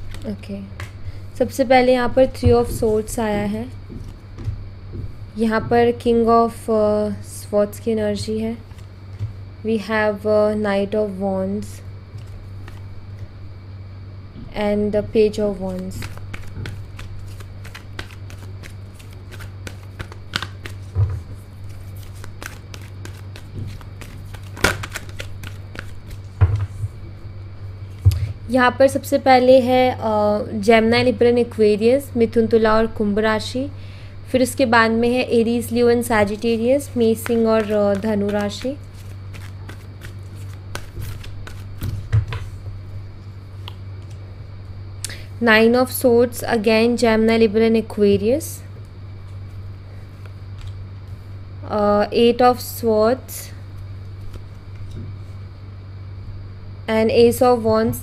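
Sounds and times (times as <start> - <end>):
cards shuffling: 0.0 - 0.9, 12.2 - 12.8, 15.5 - 26.8, 36.2 - 42.5
steady low hum: 0.0 - 58.0
card snap: 24.4 - 25.9.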